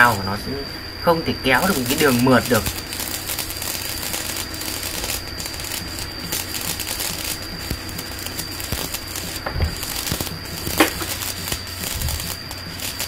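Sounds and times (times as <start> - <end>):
welding arc crackling: 0.0 - 13.0.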